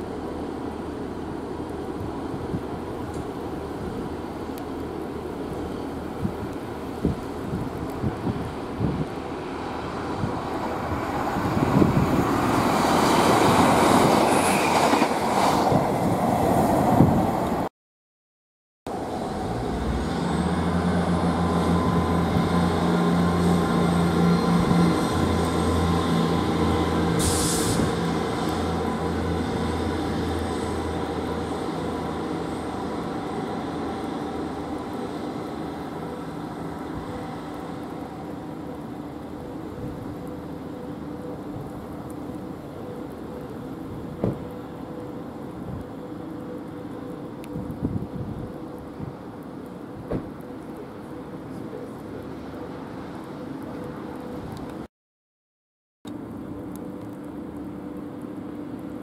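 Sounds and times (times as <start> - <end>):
diesel train engine drone: 0.0 - 17.7, 18.9 - 54.9, 56.1 - 59.0
train rumbling on tracks: 0.0 - 17.7, 18.9 - 46.6.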